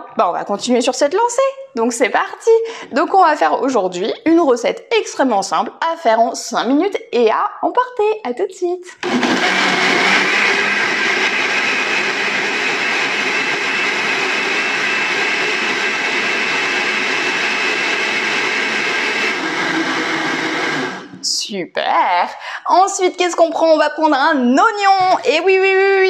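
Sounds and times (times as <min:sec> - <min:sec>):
blender running: 0:09.0 - 0:21.2.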